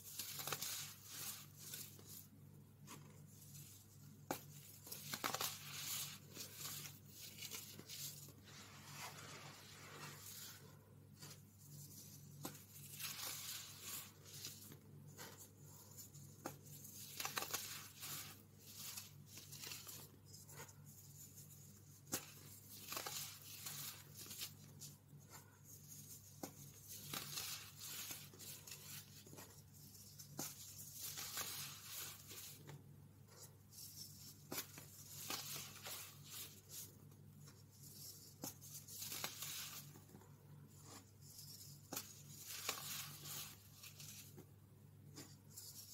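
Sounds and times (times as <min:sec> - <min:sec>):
hands raking powder: 0:02.9 - 0:32.8.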